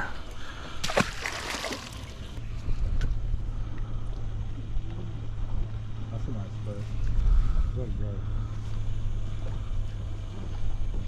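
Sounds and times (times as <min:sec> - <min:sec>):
water noise: 0:00.0 - 0:02.4
boat motor humming: 0:00.0 - 0:11.0
wind: 0:00.0 - 0:11.0.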